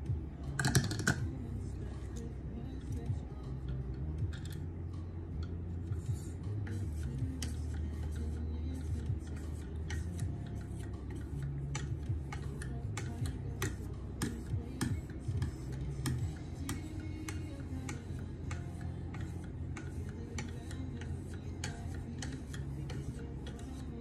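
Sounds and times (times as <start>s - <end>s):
sharpener scraping knife edge: 6.7s - 24.0s.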